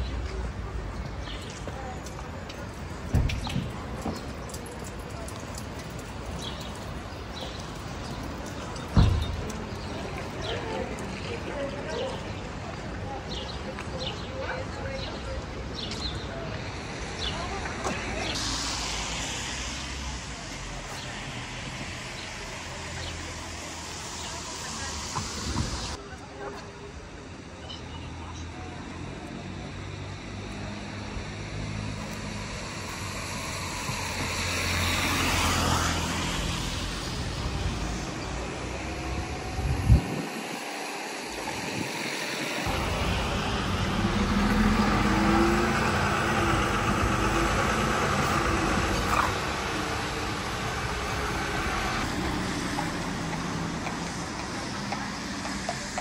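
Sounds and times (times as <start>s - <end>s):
tyres hissing on wet road: 0.0s - 14.3s, 15.0s - 56.0s
low traffic engine hum: 0.0s - 56.0s
bus engine running: 28.6s - 56.0s
car driving past: 42.5s - 55.2s
horse hooves clopping: 52.2s - 56.0s.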